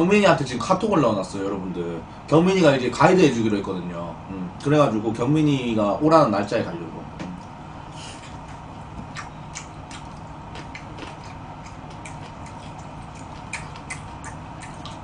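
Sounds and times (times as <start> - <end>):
wet mouth chewing: 8.3 - 15.0.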